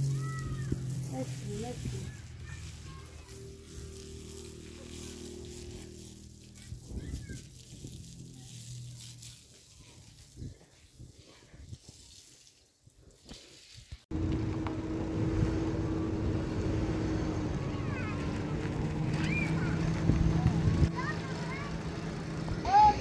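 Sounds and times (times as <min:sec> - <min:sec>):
truck engine rumbling: 0:00.0 - 0:09.3, 0:14.1 - 0:23.0.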